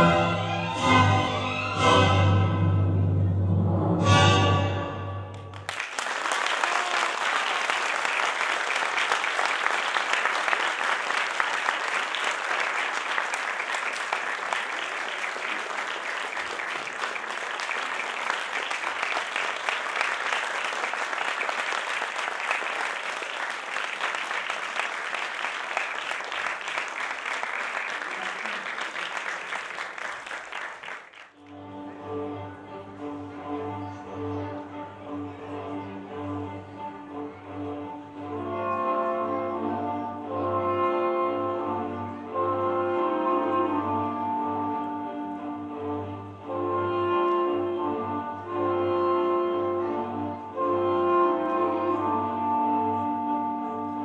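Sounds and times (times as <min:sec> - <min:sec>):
audience clapping: 0:05.3 - 0:31.4.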